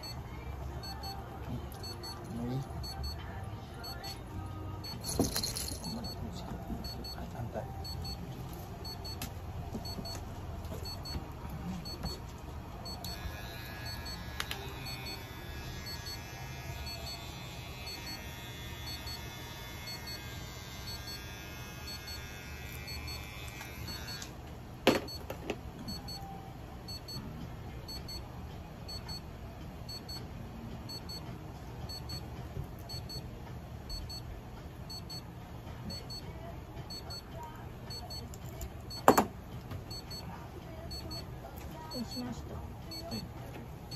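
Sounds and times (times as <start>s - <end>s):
faint electronic double beeps: 1.8s - 3.2s, 6.8s - 7.2s, 7.8s - 8.2s, 40.9s - 41.3s
electric clipper whining: 13.1s - 24.4s.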